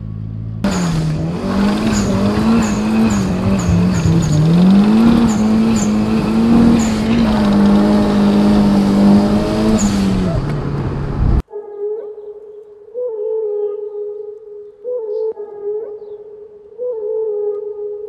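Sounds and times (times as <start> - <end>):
car engine running at high revs: 0.0 - 11.4.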